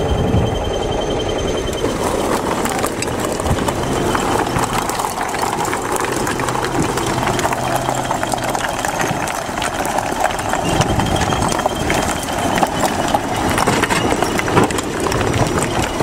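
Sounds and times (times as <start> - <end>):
bulldozer diesel engine running: 0.0 - 16.0
rocks clattering and grinding: 1.7 - 16.0.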